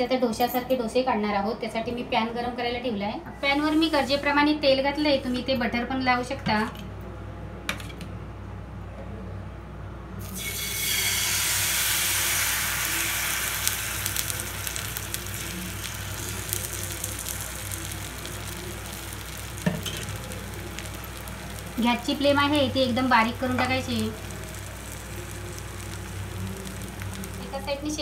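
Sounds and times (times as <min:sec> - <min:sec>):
batter sizzling in a frying pan: 0:10.2 - 0:28.0.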